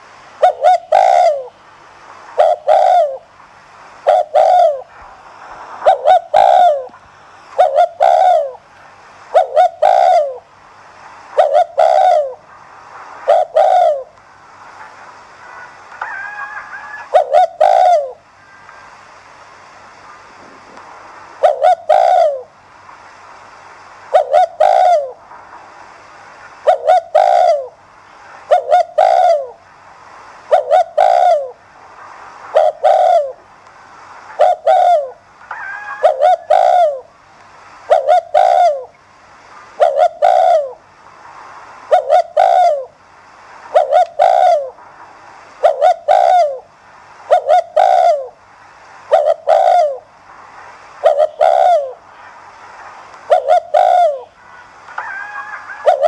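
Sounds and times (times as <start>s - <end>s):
dove cooing: 0.4s - 1.6s, 2.3s - 3.3s, 4.0s - 5.0s, 5.8s - 8.7s, 9.3s - 10.5s, 11.3s - 12.5s, 13.2s - 14.2s, 16.0s - 18.6s, 21.4s - 22.5s, 24.1s - 25.2s, 26.6s - 27.8s, 28.4s - 29.6s, 30.5s - 31.6s, 32.5s - 33.4s, 34.3s - 37.1s, 37.9s - 39.0s, 39.8s - 40.8s, 41.9s - 43.0s, 43.7s - 44.8s, 45.6s - 48.4s, 49.1s - 50.1s, 51.0s - 52.0s, 53.3s - 54.4s, 55.0s - 56.0s.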